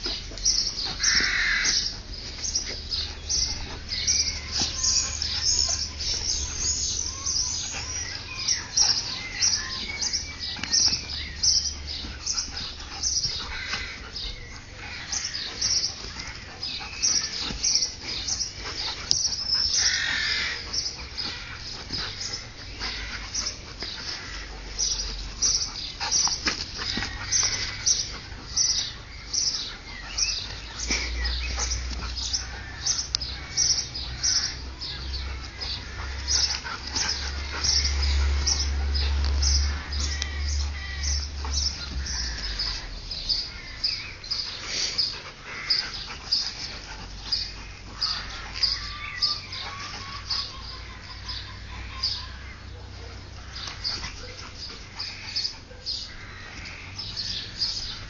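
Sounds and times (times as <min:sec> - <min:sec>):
dogs play-fighting: 0:00.0 - 0:58.0.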